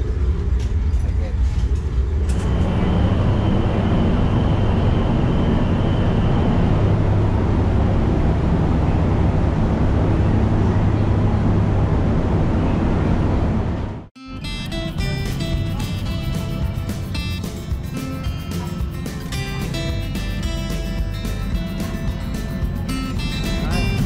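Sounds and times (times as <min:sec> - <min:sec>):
ship machinery drone: 0:00.0 - 0:24.0.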